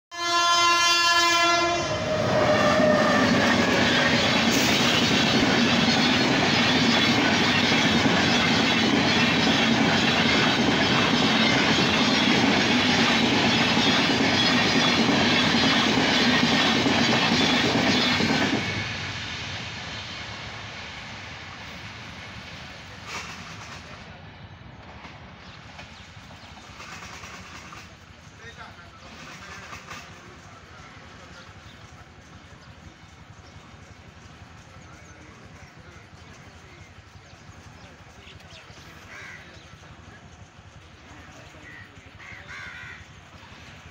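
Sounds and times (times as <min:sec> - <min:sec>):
train horn blast: 0:00.1 - 0:04.0
train wheels rumbling on rails: 0:00.2 - 0:43.9.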